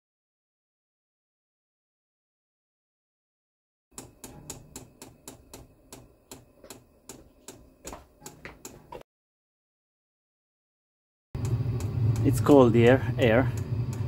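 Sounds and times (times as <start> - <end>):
blower fan hum: 4.0 - 9.0, 11.4 - 14.0
fuel pump ticking: 11.4 - 14.0.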